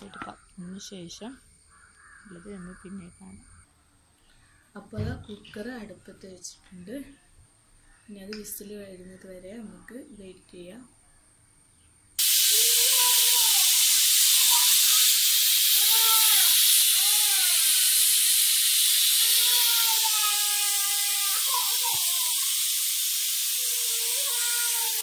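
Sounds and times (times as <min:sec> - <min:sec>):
pressure cooker steam hissing: 0:12.2 - 0:25.0.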